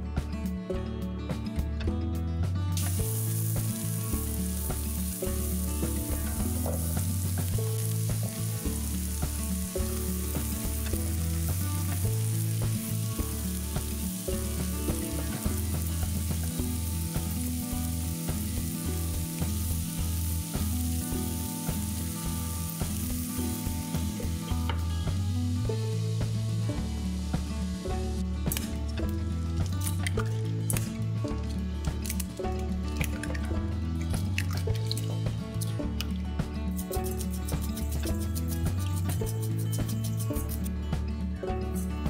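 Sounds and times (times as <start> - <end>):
quiet background music: 0.0 - 42.0
vegetables sizzling in oil: 2.8 - 30.8.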